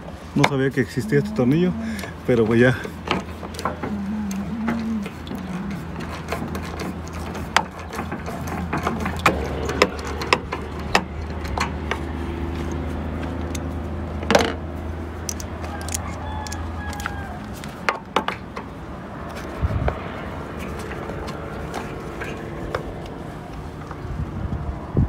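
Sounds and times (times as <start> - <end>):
metallic clicks of hand tools: 3.1 - 13.7, 15.2 - 18.1.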